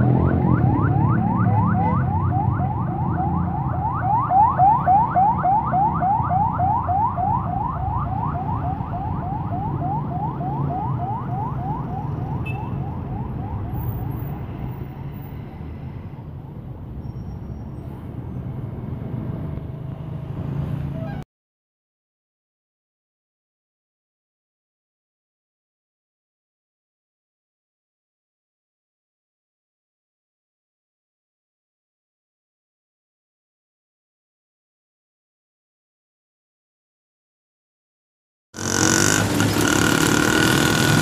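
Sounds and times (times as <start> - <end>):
electronic siren yelping: 0.0 - 14.3
street traffic rumble: 0.0 - 21.2, 38.6 - 41.0.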